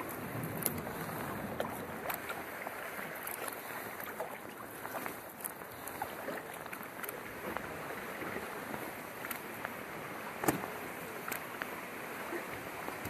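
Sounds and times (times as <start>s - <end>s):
paddle splashing: 0.0s - 13.0s
water drips and plinks: 0.0s - 13.0s
water lapping along hull: 0.0s - 13.0s.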